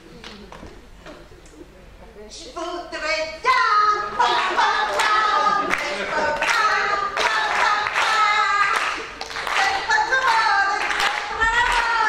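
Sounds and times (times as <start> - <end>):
people singing: 3.5 - 12.0
hands clapping: 4.4 - 12.0.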